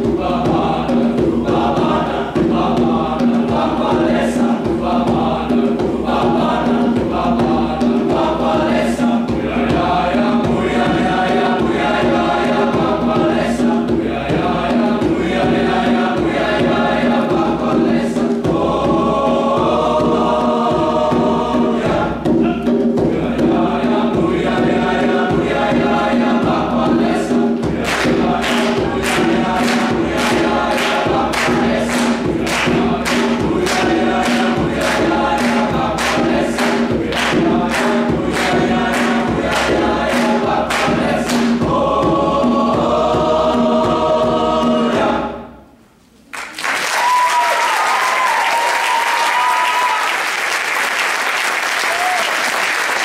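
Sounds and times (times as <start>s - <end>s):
percussive beat: 0.0s - 45.4s
men's choir singing: 0.0s - 45.6s
audience applauding: 46.3s - 53.0s.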